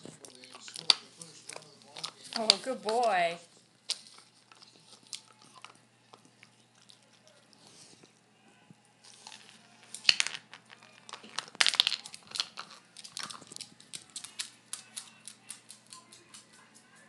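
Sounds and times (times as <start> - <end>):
dog crunching a chew: 0.0 - 8.3, 9.0 - 17.0
dog chewing clicks: 12.0 - 17.0.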